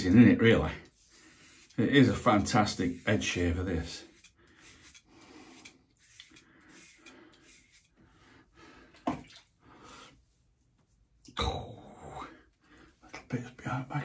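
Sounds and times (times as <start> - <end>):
razor scraping stubble: 0.8 - 8.1.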